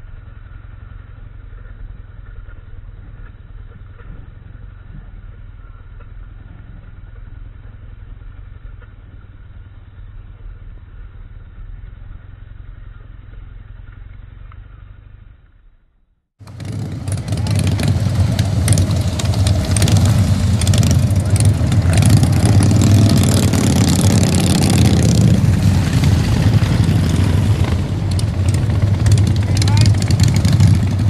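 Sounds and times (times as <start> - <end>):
motorcycle engine rumbling: 0.0 - 31.0.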